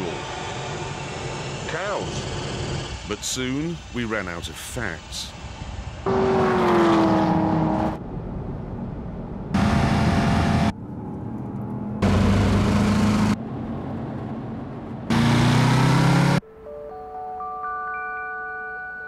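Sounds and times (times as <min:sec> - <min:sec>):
steady engine and road noise: 0:00.0 - 0:16.4
loud car engines passing: 0:06.1 - 0:08.0, 0:09.6 - 0:16.4.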